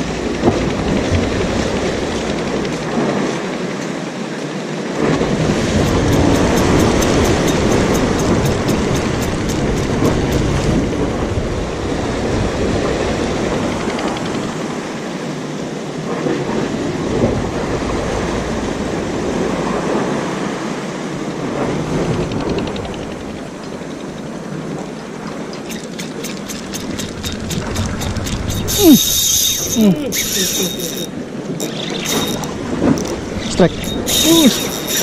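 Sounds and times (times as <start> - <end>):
waves washing against concrete: 0.0 - 35.0
fishing reel clicking: 5.8 - 10.5, 25.7 - 35.0.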